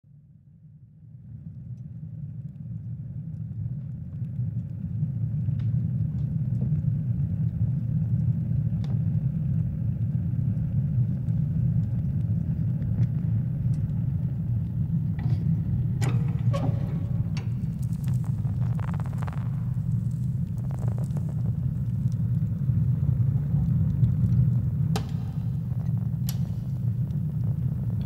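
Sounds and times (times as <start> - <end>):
faint clicks and crackles: 1.5 - 28.0
low rumbling drone: 6.0 - 28.0.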